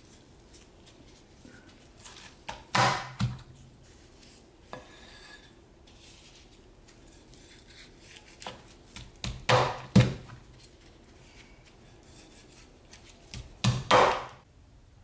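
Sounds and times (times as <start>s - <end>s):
cleaver chopping on wooden board: 2.5s - 3.4s, 9.2s - 10.2s, 13.4s - 14.4s.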